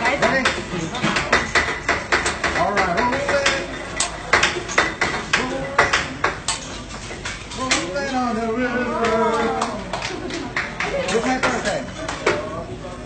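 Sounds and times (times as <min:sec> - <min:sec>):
people talking: 0:02.6 - 0:03.7.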